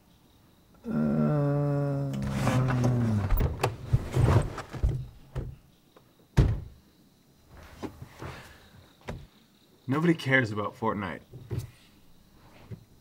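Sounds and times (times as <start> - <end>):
knocks and thunks inside car: 3.2 - 5.6, 6.4 - 6.8.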